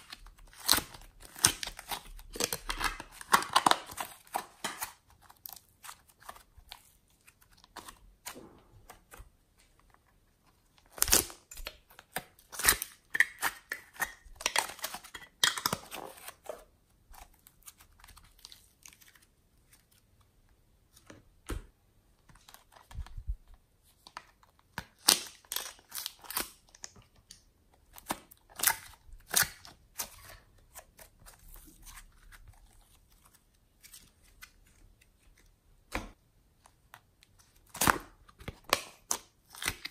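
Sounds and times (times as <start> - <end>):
sticky slime crackling and tearing: 0.0 - 8.0.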